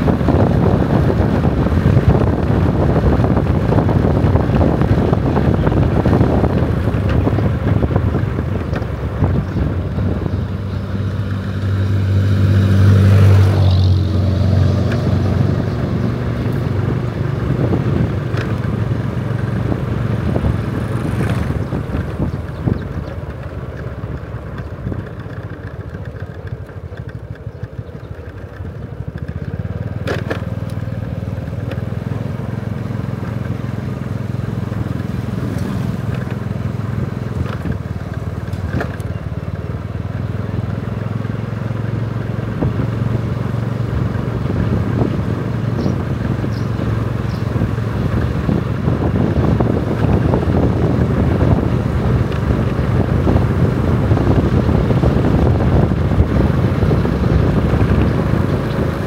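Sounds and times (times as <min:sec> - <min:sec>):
engine running: 0:00.0 - 0:59.0.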